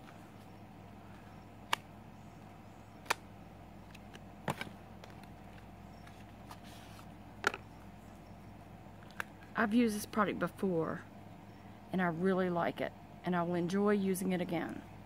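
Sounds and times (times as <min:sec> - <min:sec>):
faint steady hum: 0:00.0 - 0:15.0
packaging clicks and taps: 0:03.8 - 0:06.6.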